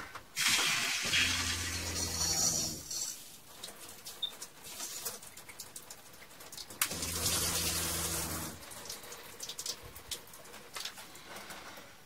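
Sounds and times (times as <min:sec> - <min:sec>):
water pump motor hum: 0:00.4 - 0:04.0, 0:05.8 - 0:11.4
shower spraying and dripping: 0:00.4 - 0:11.9.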